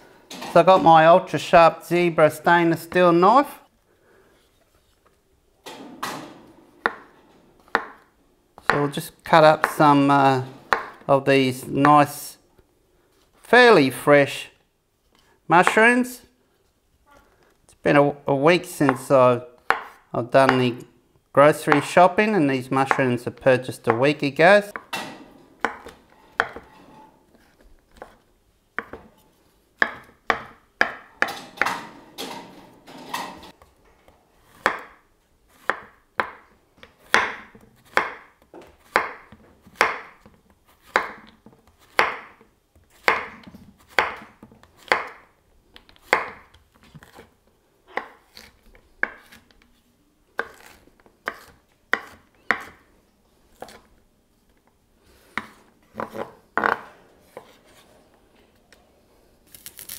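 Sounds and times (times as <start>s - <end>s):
knife chopping vegetables: 18.7s - 20.8s, 21.6s - 23.2s, 34.5s - 47.3s, 47.9s - 49.5s, 50.4s - 52.9s.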